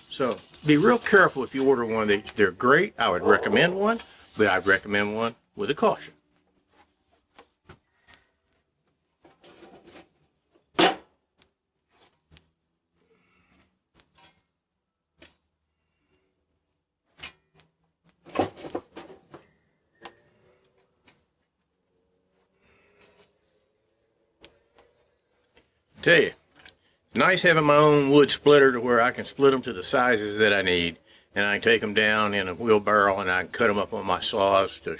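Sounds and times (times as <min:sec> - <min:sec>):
firewood and metal peel clattering: 0:17.2 - 0:19.4.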